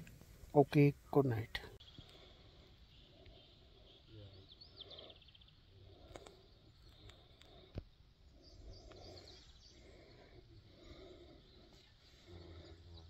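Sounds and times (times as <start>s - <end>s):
faint ticks: 6.0s - 7.9s.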